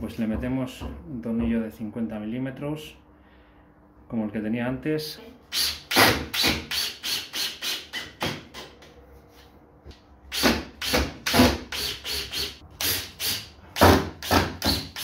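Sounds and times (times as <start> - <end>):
cordless drill driving screws into wood: 5.5 - 8.1, 10.3 - 15.0.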